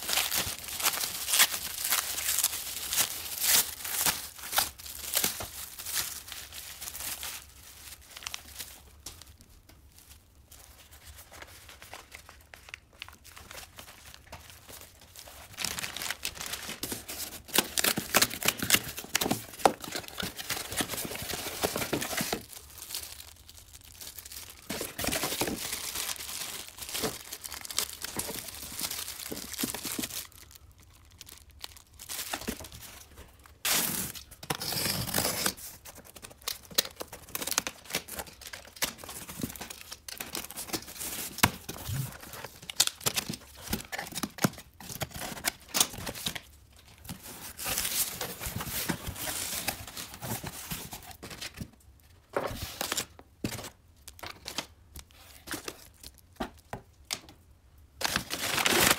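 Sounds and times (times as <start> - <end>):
packing paper rustling: 0.0 - 56.8, 58.0 - 58.9
packing tape tearing: 15.6 - 23.2, 33.6 - 46.4, 58.0 - 58.9.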